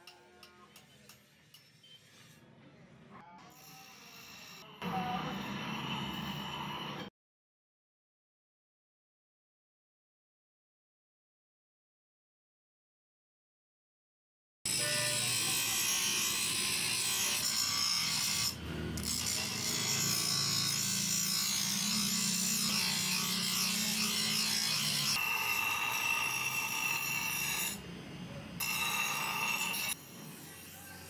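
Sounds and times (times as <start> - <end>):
grinder wheel grinding steel: 14.7 - 31.0.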